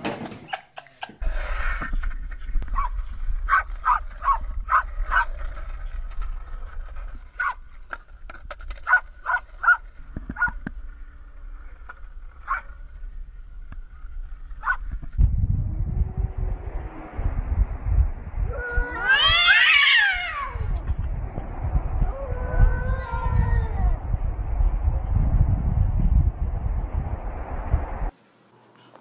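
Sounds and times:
low steady rumble: 1.3 - 28.1
small dog yipping and barking: 8.9 - 9.8, 14.6 - 14.8.

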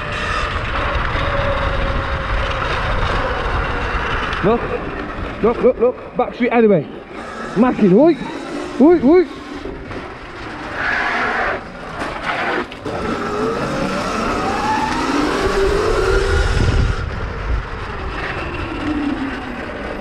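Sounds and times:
wind and tyre noise: 0.0 - 20.0
electric motor whine: 6.8 - 20.0.

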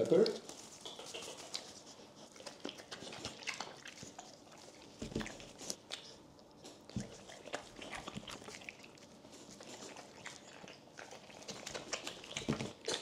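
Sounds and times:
dog chewing meat: 0.0 - 13.0.

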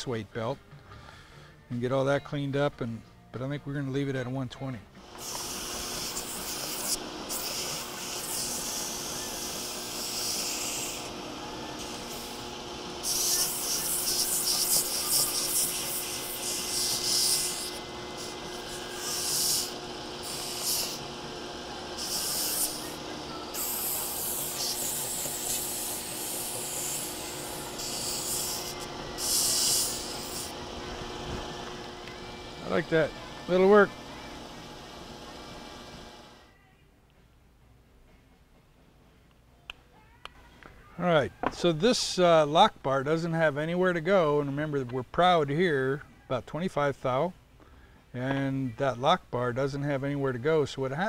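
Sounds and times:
abrasive grinding hiss: 5.0 - 31.8
grinder motor hum: 5.0 - 36.5.

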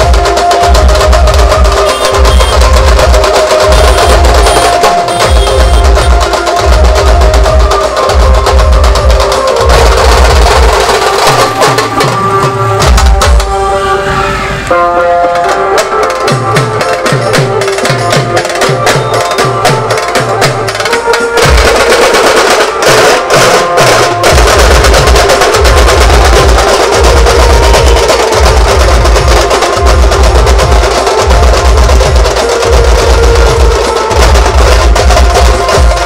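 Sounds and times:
heavy pulsing bass beat: 0.0 - 13.4, 24.1 - 36.0
fast drumming on drums: 0.0 - 13.5, 15.4 - 36.0
loud procession music: 0.0 - 36.0.

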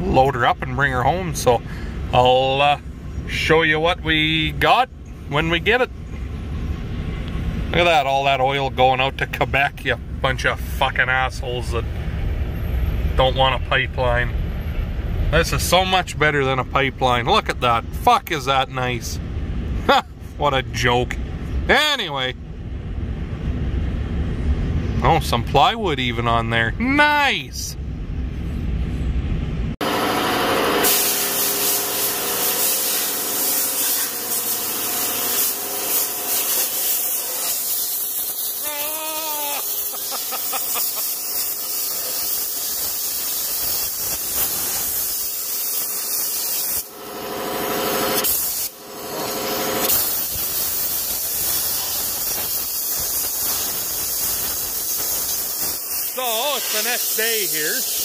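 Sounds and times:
vehicle road noise: 0.0 - 38.6, 39.6 - 58.0
hissing rub of cleaning metal bores: 30.8 - 58.0.

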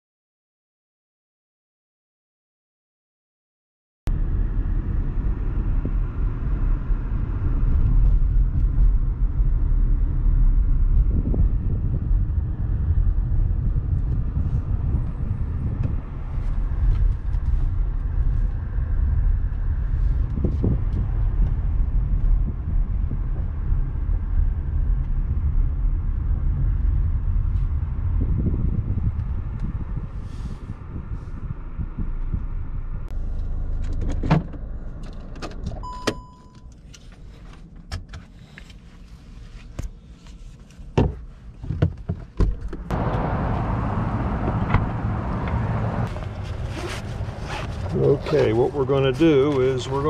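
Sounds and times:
car interior road and engine rumble: 4.1 - 50.0.

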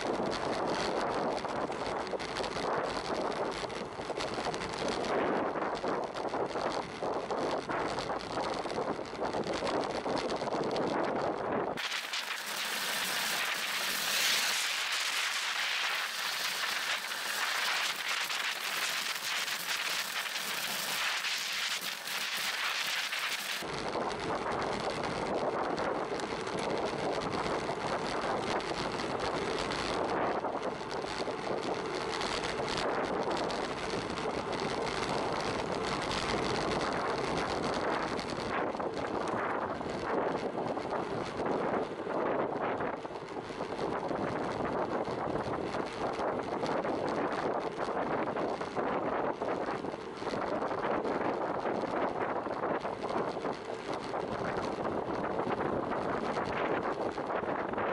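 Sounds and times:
road and tyre noise: 0.0 - 57.9
wind on microphone: 0.0 - 57.9.

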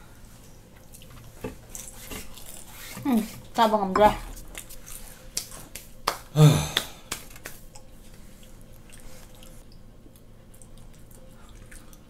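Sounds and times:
chewing mouth sounds: 7.5 - 12.0.

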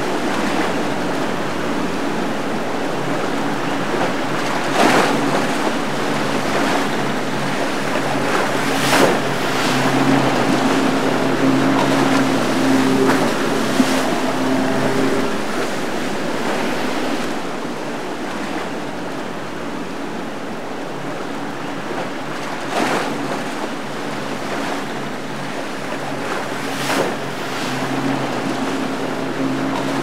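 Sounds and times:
boat engines droning: 0.0 - 30.0
water rushing and splashing: 0.0 - 30.0
sharp splashes: 3.1 - 18.8.

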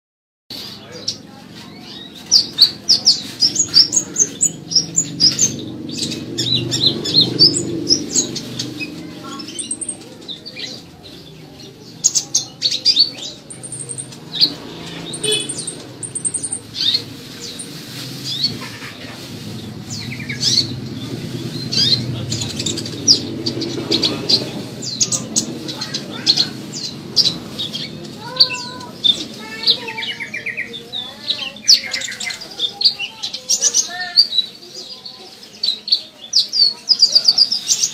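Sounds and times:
bird chirping high notes: 12.4 - 17.0.

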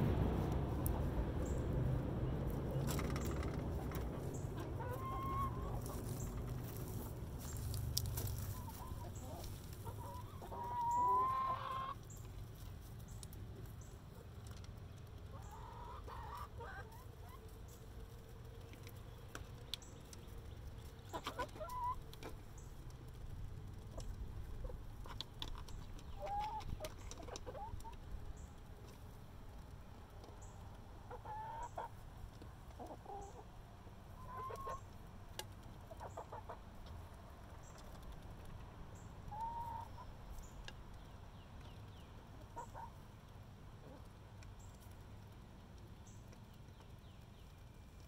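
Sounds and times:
hens clucking: 2.3 - 12.7, 14.1 - 18.8, 19.7 - 28.1, 31.0 - 38.6, 39.3 - 40.8, 41.9 - 43.0.

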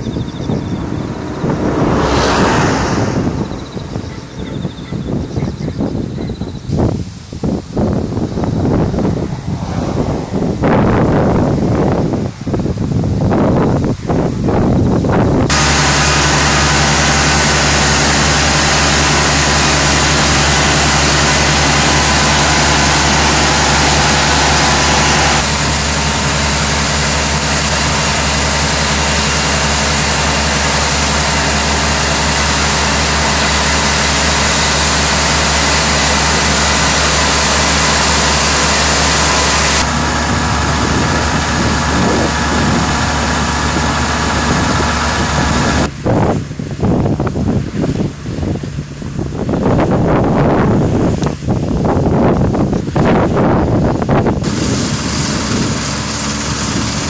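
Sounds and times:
combine harvester running: 0.0 - 57.0
grain unloading through auger: 15.5 - 45.8, 54.2 - 57.0.

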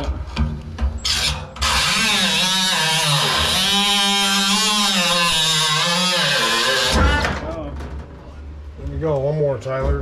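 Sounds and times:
cut-off tool grinding sheet metal: 1.0 - 7.3.

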